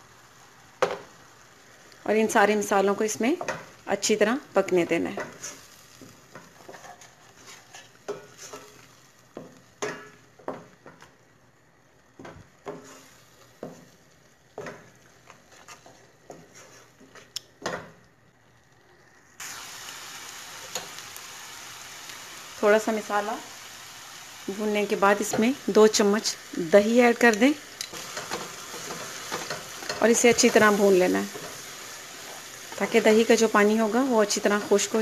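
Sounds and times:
food sizzling in oil: 0:00.0 - 0:35.0
wooden spatula scraping metal pot: 0:05.1 - 0:08.8, 0:14.6 - 0:17.8.

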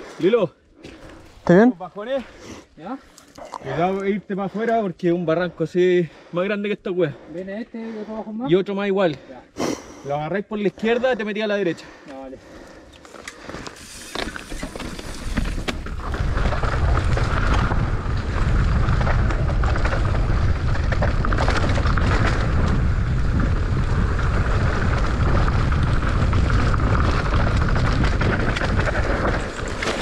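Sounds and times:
tyres grinding over loose soil: 0:13.4 - 0:30.0
wind rushing on microphone: 0:14.2 - 0:30.0.

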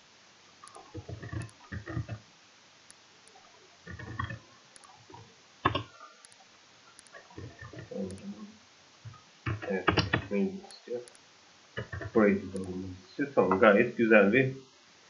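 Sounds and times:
keyboard typing: 0:00.6 - 0:02.2, 0:02.9 - 0:06.4, 0:07.0 - 0:08.4, 0:11.8 - 0:12.8
mouse click: 0:02.9 - 0:05.0, 0:05.7 - 0:07.2, 0:09.1 - 0:11.2.

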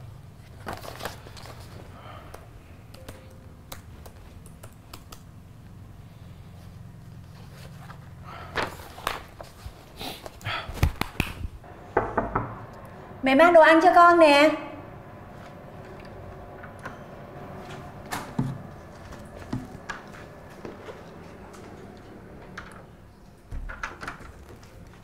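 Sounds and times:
paper sheets rustling: 0:00.4 - 0:02.0, 0:07.2 - 0:11.2
laptop keys clicking: 0:02.9 - 0:05.4.

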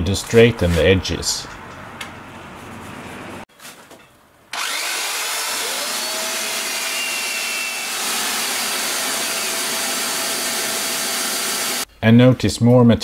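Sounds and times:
belt sander sanding wood: 0:04.6 - 0:11.9.

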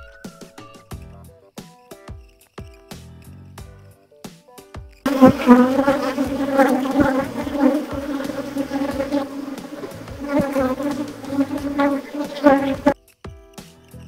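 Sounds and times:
faint background music: 0:00.0 - 0:14.0
honeybees buzzing: 0:05.1 - 0:13.0.

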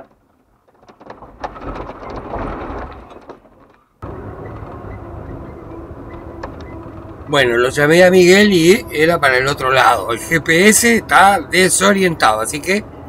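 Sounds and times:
tyres rolling over gravel: 0:00.0 - 0:12.8
pickup engine running: 0:04.0 - 0:13.0.

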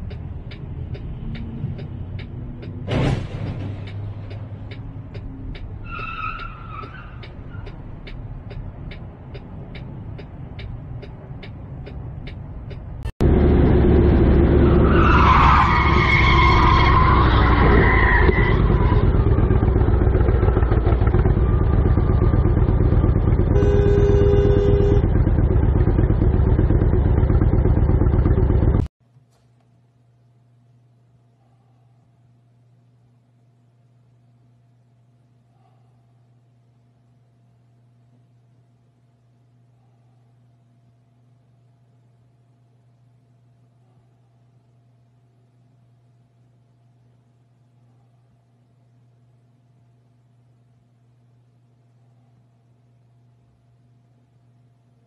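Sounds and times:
steady ticking: 0:00.0 - 0:02.8, 0:03.8 - 0:05.8, 0:07.2 - 0:13.1
wind and road rush: 0:00.0 - 0:16.0
vehicle road noise: 0:00.0 - 0:28.9
car horn: 0:23.5 - 0:25.2.

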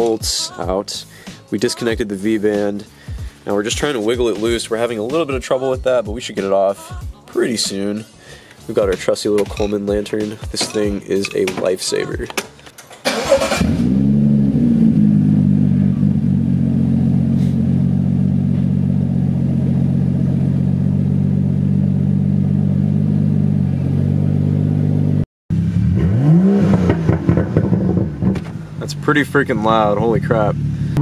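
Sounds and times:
engine revving: 0:13.1 - 0:31.0
car engine running loud: 0:13.5 - 0:31.0.

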